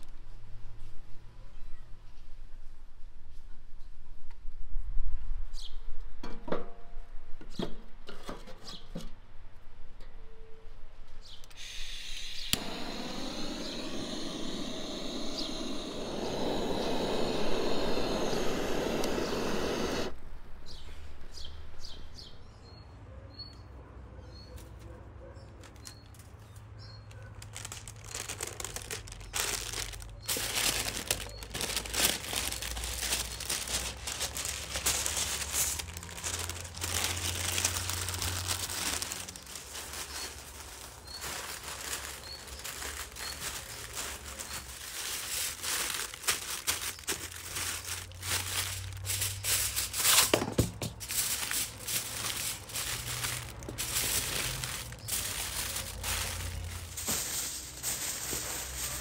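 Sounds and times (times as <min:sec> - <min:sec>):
small bird chirping: 0:11.2 - 0:23.7
gas torch hissing: 0:11.6 - 0:20.3
paper and foil crinkling: 0:25.6 - 0:59.0.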